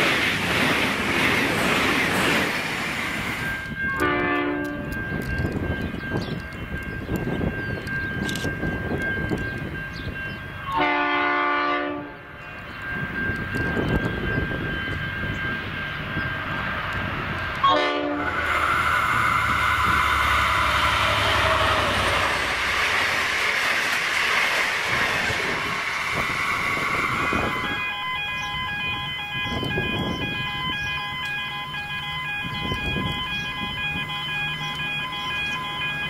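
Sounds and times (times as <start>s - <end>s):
carriages rushing and rumbling: 0.0s - 10.7s, 12.1s - 36.0s
diesel locomotive engine hum: 0.0s - 36.0s
train horn blast: 3.9s - 5.0s, 10.7s - 12.3s, 17.6s - 18.6s, 19.7s - 22.4s
electronic warning tone: 26.9s - 36.0s.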